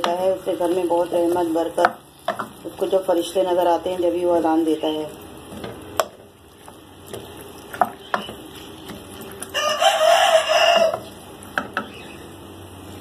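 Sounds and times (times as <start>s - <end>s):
rooster crowing: 9.5s - 11.1s.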